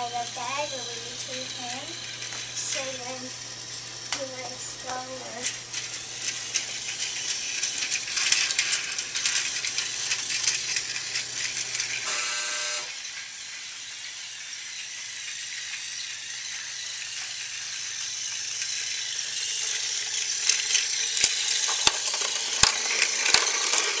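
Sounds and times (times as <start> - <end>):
plastic toy trains clattering: 0.0 - 24.0
buzzy tone: 12.0 - 13.0.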